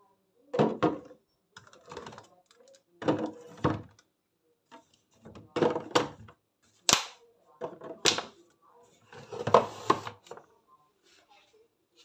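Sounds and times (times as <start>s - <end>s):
plastic bottles clunking: 0.6s - 2.3s, 3.0s - 4.0s, 5.2s - 6.3s.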